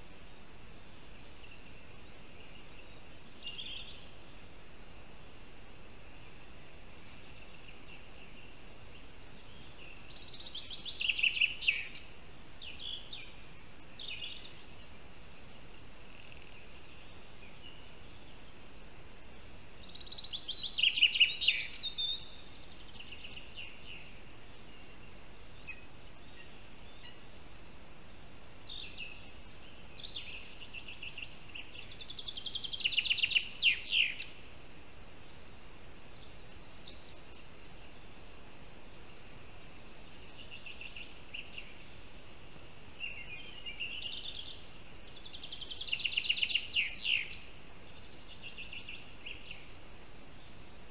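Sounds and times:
faint high hiss: 0:00.0 - 0:50.9
songbird trilling: 0:09.5 - 0:14.6, 0:19.6 - 0:25.0, 0:28.5 - 0:34.4, 0:43.0 - 0:47.5.

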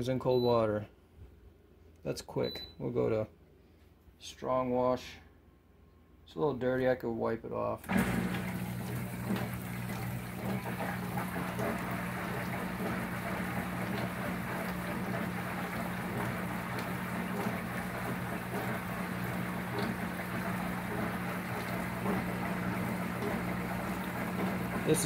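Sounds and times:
dishwasher pump humming: 0:07.8 - 0:25.0
water spraying and splashing: 0:07.9 - 0:25.0.

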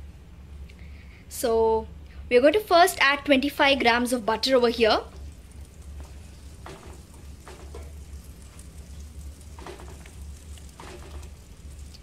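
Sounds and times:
steady low hum: 0:00.0 - 0:12.0
butter sizzling in a pan: 0:04.8 - 0:12.0
whisk swishing against pan: 0:05.1 - 0:12.0.

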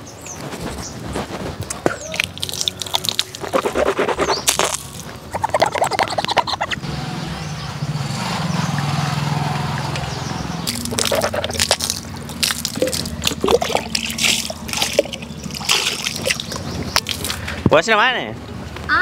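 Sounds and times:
water splashing and dripping: 0:01.7 - 0:06.8, 0:08.7 - 0:17.6
steady low hum: 0:10.4 - 0:17.7.

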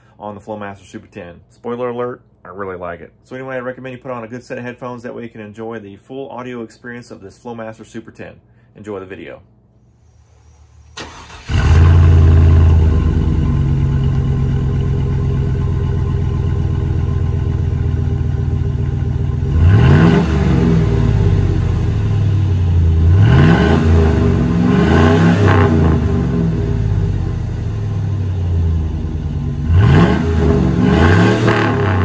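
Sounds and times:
pickup engine starting and idling: 0:10.6 - 0:32.0
engine revving: 0:11.0 - 0:32.0.

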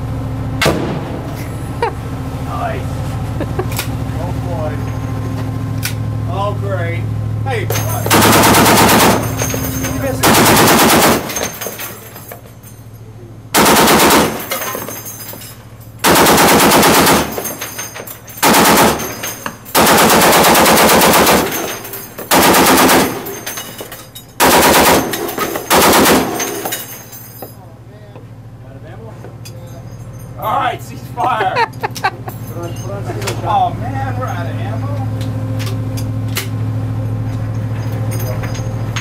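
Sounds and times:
machine gun bursts: 0:07.8 - 0:12.2, 0:13.6 - 0:15.1, 0:16.0 - 0:27.0.

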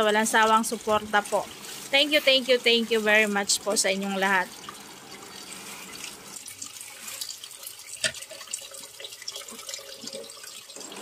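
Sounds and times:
tap water splashing into bowl: 0:06.0 - 0:11.0.

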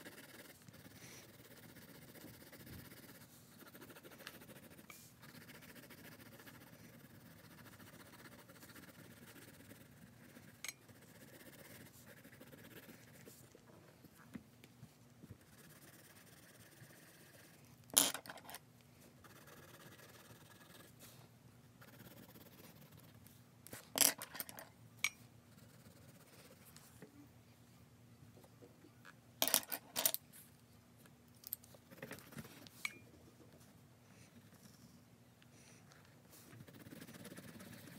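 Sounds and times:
pencil scratching on paper: 0:00.0 - 0:13.5, 0:15.3 - 0:18.4, 0:19.2 - 0:21.0, 0:21.8 - 0:23.3, 0:25.5 - 0:26.7, 0:36.4 - 0:37.9.

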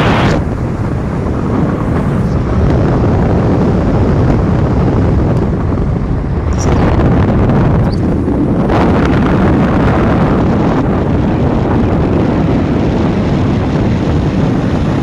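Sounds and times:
low road rumble: 0:00.0 - 0:15.0
wind buffeting microphone: 0:00.0 - 0:15.0.

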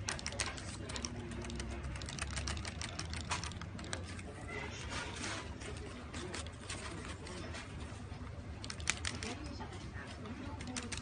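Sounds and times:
plastic toy clicking and rattling: 0:00.0 - 0:04.3, 0:08.6 - 0:09.7, 0:10.3 - 0:11.0.

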